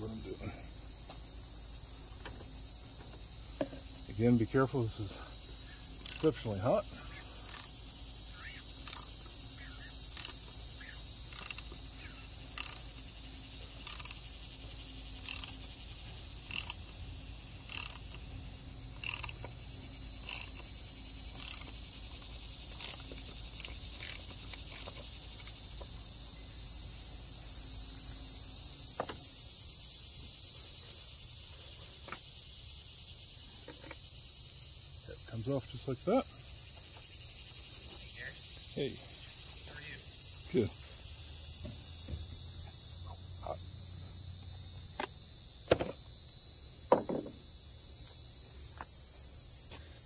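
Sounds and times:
insects buzzing: 0.0 - 50.0
ratchet clicking: 6.0 - 6.4, 7.4 - 7.8, 8.8 - 9.3, 10.0 - 11.8, 12.5 - 13.0, 13.8 - 14.3, 15.2 - 15.7, 16.4 - 17.0, 17.6 - 18.3, 19.0 - 25.7.

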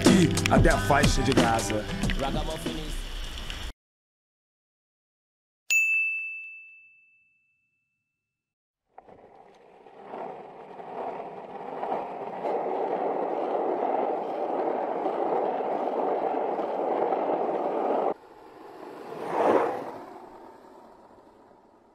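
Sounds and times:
dense rushing noise: 9.7 - 21.9.

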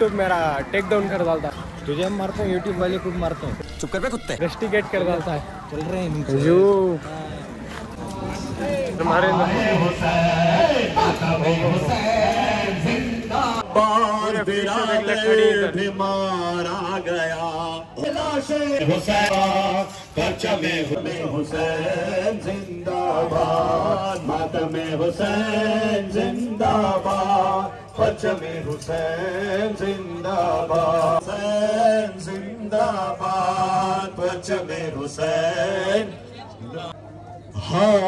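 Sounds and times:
men chanting a lament: 0.0 - 3.7, 4.4 - 38.0.

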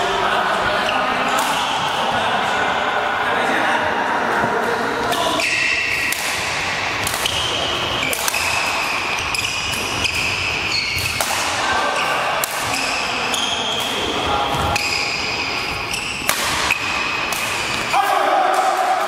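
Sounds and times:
racket hitting shuttlecock: 4.4 - 19.0
shoes squeaking on floor: 7.2 - 11.2, 11.9 - 17.9.

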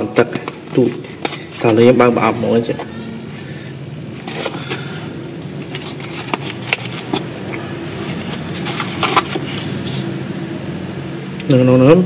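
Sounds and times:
cardboard box handling rustles: 0.4 - 1.8, 4.2 - 10.1.

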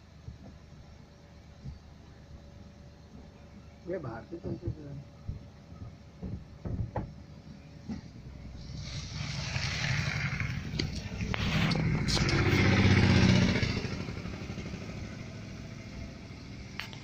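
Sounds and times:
auto-rickshaw engine passing: 8.4 - 17.0.

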